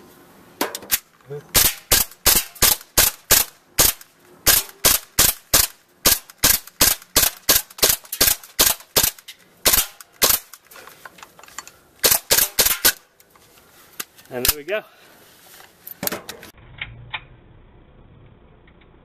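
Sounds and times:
airsoft pistol shots: 0:01.5 - 0:10.5.

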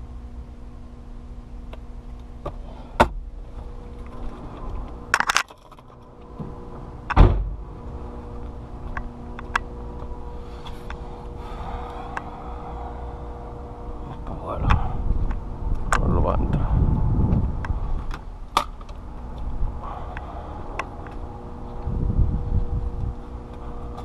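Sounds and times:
steady hum: 0:00.0 - 0:24.0
truck door slamming: 0:07.1 - 0:07.6.

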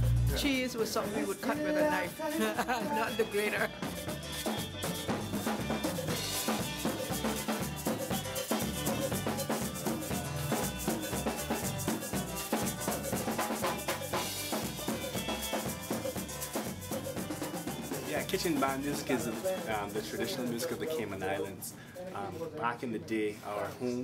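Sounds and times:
bass line: 0:00.0 - 0:00.7, 0:03.7 - 0:19.2
drums and percussion: 0:00.0 - 0:23.6.

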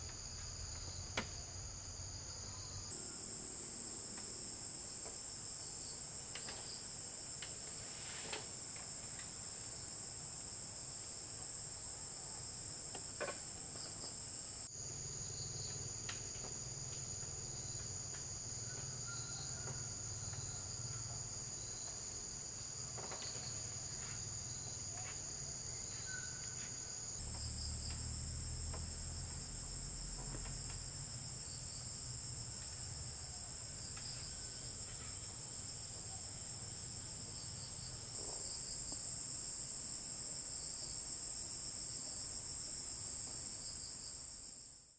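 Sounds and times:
high-pitched insect chorus drone: 0:00.0 - 0:12.5, 0:13.8 - 0:44.8.

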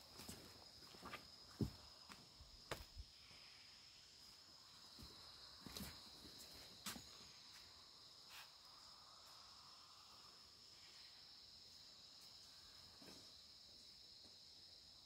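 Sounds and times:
low insect tone: 0:00.0 - 0:15.0
high-pitched insect drone: 0:01.5 - 0:15.0.

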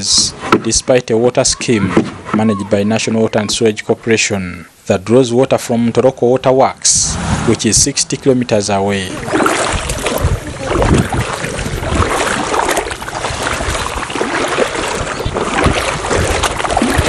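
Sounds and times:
footsteps splashing in water: 0:09.0 - 0:17.0.

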